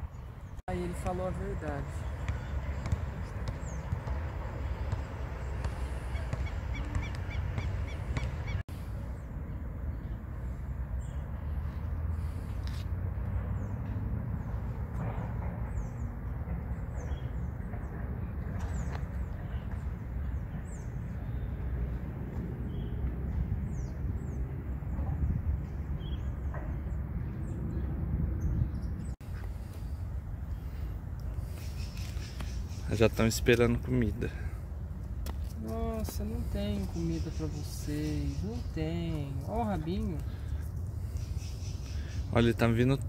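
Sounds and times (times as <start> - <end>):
small birds chirping: 0.0 - 12.8, 22.6 - 43.0.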